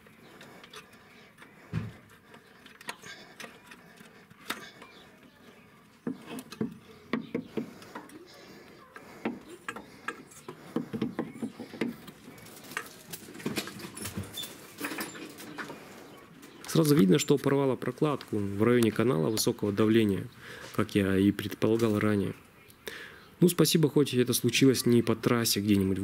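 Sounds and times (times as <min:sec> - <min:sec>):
metal tools clinking on engine: 0:12.5 - 0:15.7.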